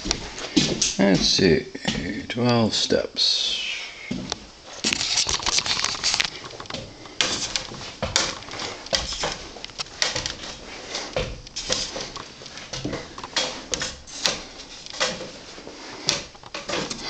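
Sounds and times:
footsteps on wooden stairs: 0:00.0 - 0:02.3, 0:04.1 - 0:04.8, 0:06.4 - 0:17.0.

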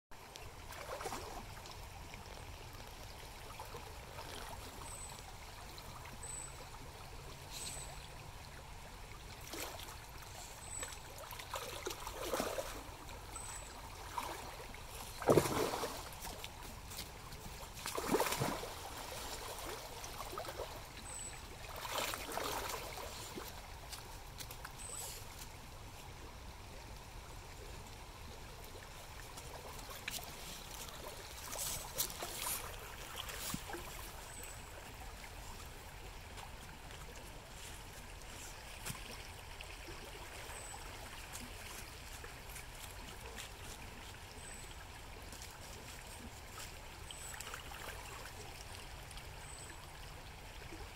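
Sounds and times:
river running over gravel: 0:00.2 - 0:50.9.

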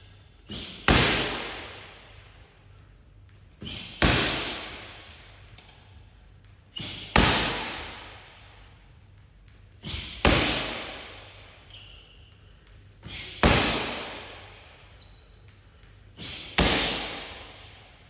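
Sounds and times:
kick slapping heavy bag: 0:00.5 - 0:02.0, 0:03.6 - 0:05.2, 0:06.8 - 0:08.2, 0:09.8 - 0:11.5, 0:13.0 - 0:14.6, 0:16.2 - 0:17.8.

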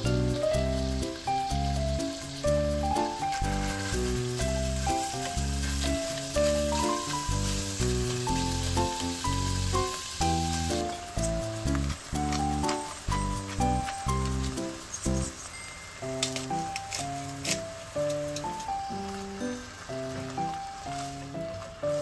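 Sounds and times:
background music with bass line: 0:00.0 - 0:15.3
meat sizzling in a pan: 0:00.0 - 0:22.0
spatula in pan: 0:00.2 - 0:19.2.

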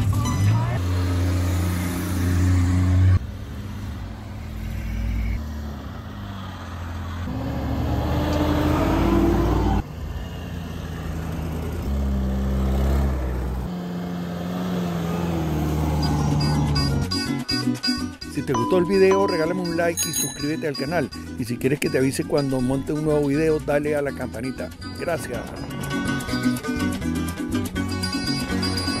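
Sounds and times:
vehicles driving past on dirt: 0:00.1 - 0:17.1
engine accelerating: 0:00.8 - 0:17.1.

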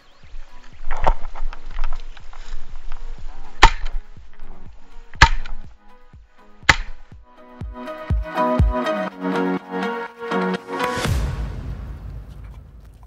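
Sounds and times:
background music with steady beat: 0:03.8 - 0:12.8.

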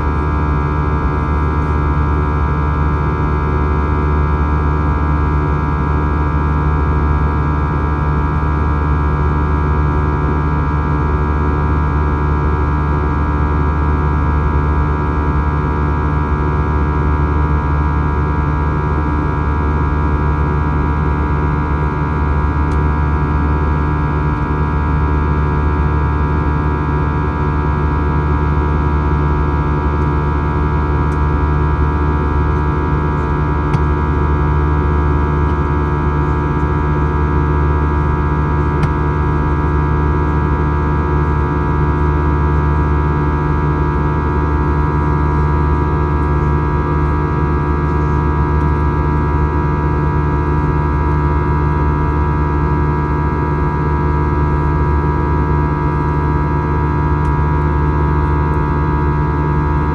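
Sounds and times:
airliner cabin drone: 0:00.0 - 0:04.5, 0:20.6 - 0:41.6, 0:42.6 - 0:49.7.

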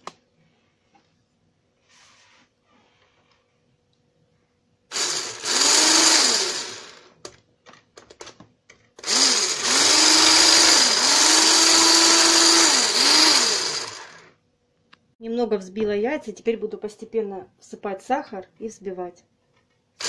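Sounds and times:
stick blender whisking eggs: 0:04.9 - 0:06.9, 0:09.0 - 0:14.2.

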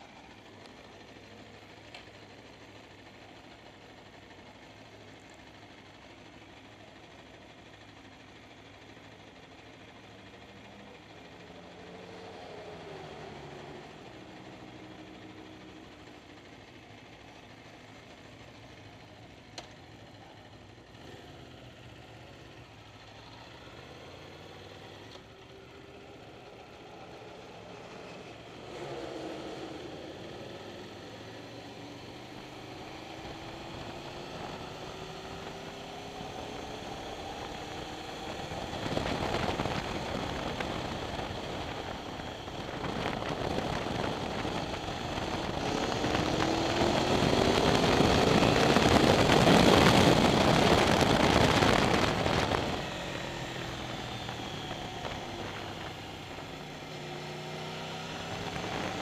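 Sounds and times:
motorcycle engine idling and pulling away: 0:00.0 - 0:59.0.

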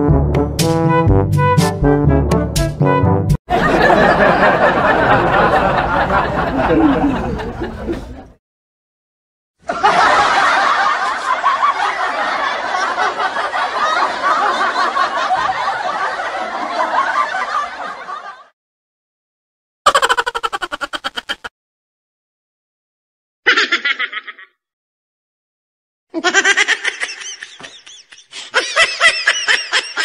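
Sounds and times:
audience laughter: 0:03.5 - 0:08.4, 0:09.6 - 0:18.5, 0:26.2 - 0:30.0.

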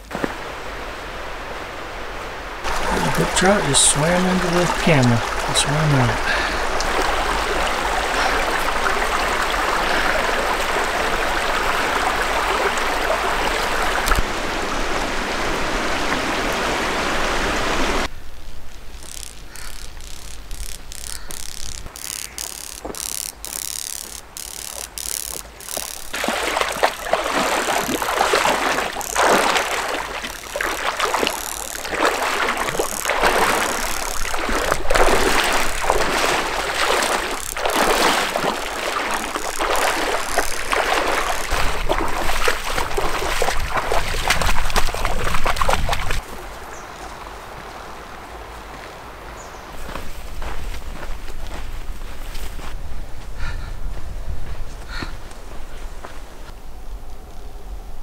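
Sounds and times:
wading and splashing in stream: 0:00.0 - 0:18.1, 0:18.9 - 0:52.8
stream water running: 0:00.0 - 0:52.7
footsteps through dry grass: 0:18.6 - 0:46.4, 0:49.7 - 0:56.6.

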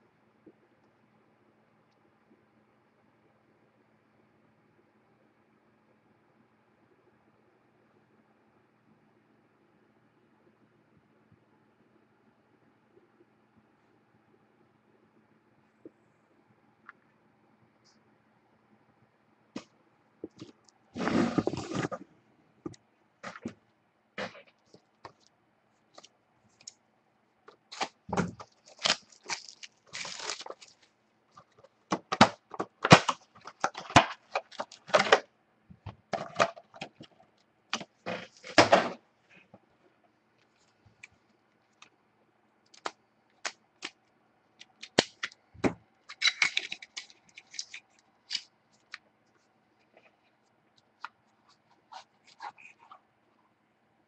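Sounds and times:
cardboard packaging crackling: 0:27.7 - 0:35.2.

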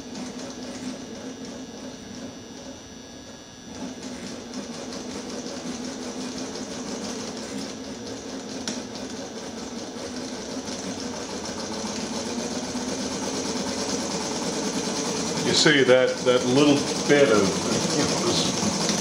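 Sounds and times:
model engine mechanical clatter: 0:15.3 - 0:19.0.

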